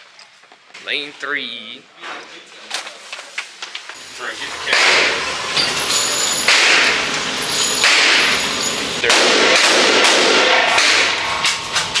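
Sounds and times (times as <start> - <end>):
echoing gunshots indoors: 4.7 - 5.3, 6.4 - 7.2, 7.8 - 12.0.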